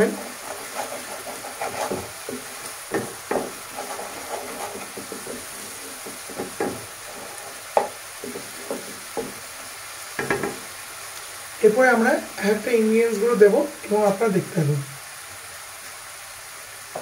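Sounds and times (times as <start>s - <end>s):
spatula scraping and knocking pan: 0.0s - 10.7s
food sizzling in oil: 0.0s - 17.0s.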